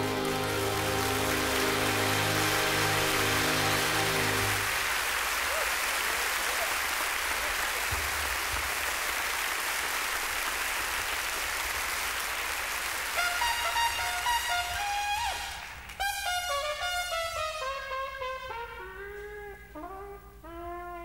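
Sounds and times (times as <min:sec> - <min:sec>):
band final chord: 0:00.0 - 0:04.7
trumpet playing: 0:00.0 - 0:05.2, 0:13.0 - 0:21.0
audience applauding: 0:00.0 - 0:16.1.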